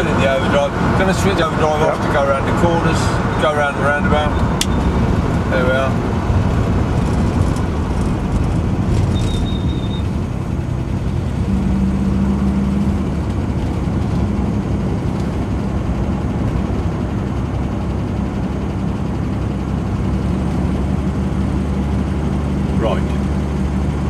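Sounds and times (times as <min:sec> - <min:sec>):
car engine running: 0:00.0 - 0:24.0
road noise: 0:00.0 - 0:24.0.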